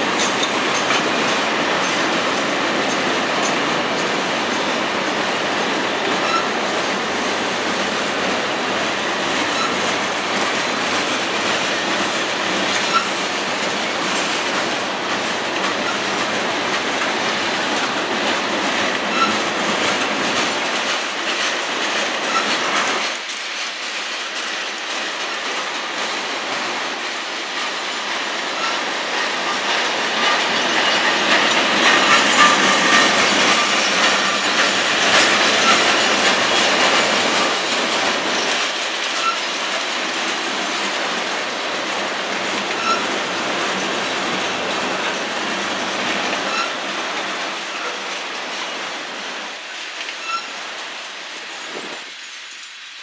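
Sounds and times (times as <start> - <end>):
train wheels rushing on rails: 0.0 - 53.0
faint high squeaks: 50.2 - 50.6.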